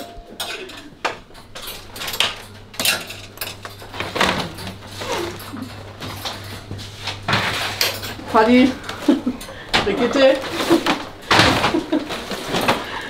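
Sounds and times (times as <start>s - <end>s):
steady low hum: 0.0s - 13.0s
crates and goods clattering: 1.1s - 13.0s.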